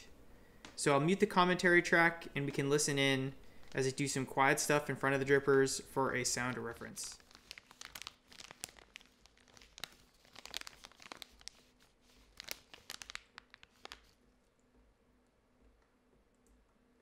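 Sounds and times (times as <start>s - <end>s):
plastic bag crinkling: 6.4s - 14.2s.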